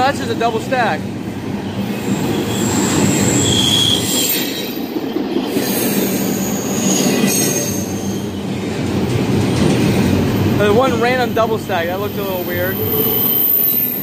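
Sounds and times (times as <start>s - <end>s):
steel wheels rumbling on rail: 0.0s - 14.0s
high-pitched wheel squeals: 2.1s - 4.8s, 6.1s - 8.4s, 12.2s - 14.0s.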